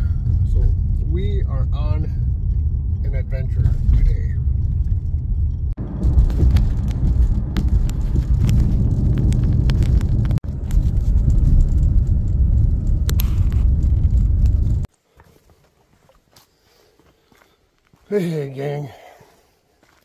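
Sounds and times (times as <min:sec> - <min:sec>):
car road and tyre rumble: 0:00.0 - 0:14.9.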